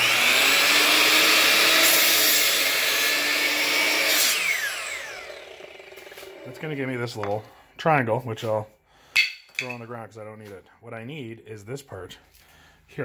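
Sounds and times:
saw motor winding down: 0.0 - 7.2
mitre saw cutting board: 0.0 - 7.5.

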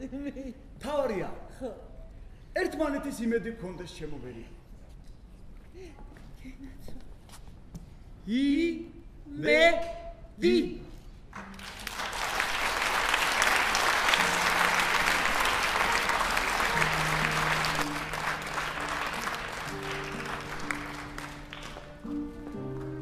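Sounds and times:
audience applauding: 11.4 - 22.3
slow instrumental music: 13.6 - 23.0.

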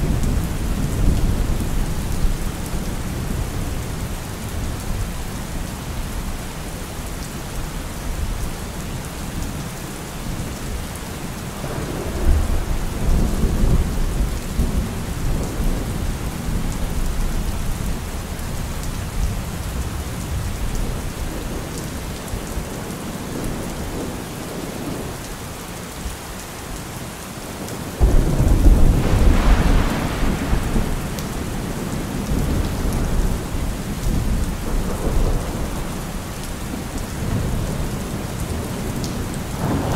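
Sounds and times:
steady rain: 0.0 - 39.9
thunderclap: 28.0 - 33.4, 39.6 - 39.9
thunder rumbling: 28.0 - 39.9.

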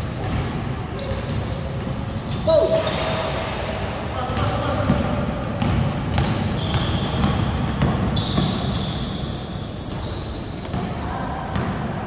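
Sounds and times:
basketball dribbling on court: 4.3 - 9.1
shoes squeaking: 6.2 - 10.8.

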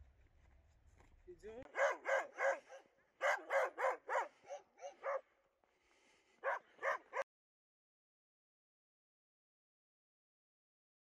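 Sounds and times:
dog barking: 1.7 - 5.3, 6.4 - 7.3.

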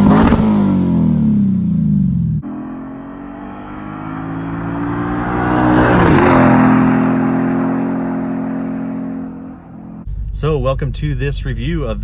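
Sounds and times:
car accelerating past: 2.4 - 10.0.

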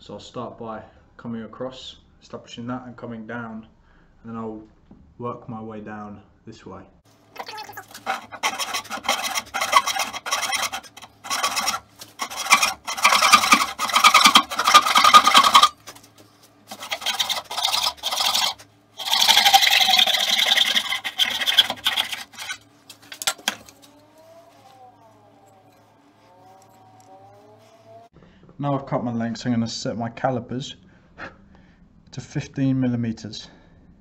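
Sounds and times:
hand plane rasping scrape: 7.8 - 24.8.

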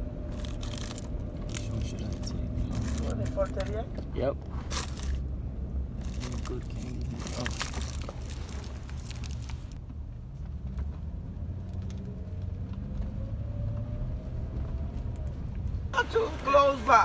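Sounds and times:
engine and road noise in cabin: 0.0 - 17.0.

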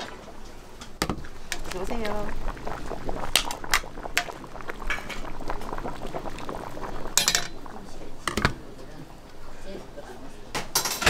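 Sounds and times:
ladle scooping and pouring soup: 0.0 - 8.7.

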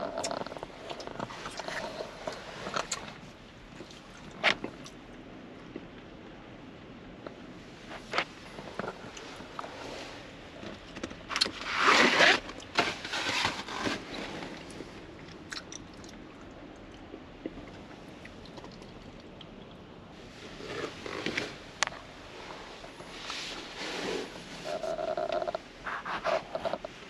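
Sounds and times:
rain hissing on a shell roof: 7.4 - 25.9
close scraping and crunching: 7.9 - 14.9, 20.3 - 27.0.

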